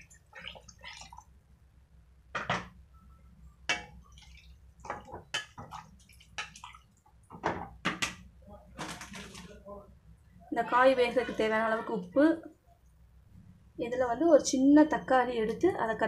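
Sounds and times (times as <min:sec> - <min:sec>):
ladle splashing in water: 0:00.0 - 0:01.2, 0:03.7 - 0:07.0.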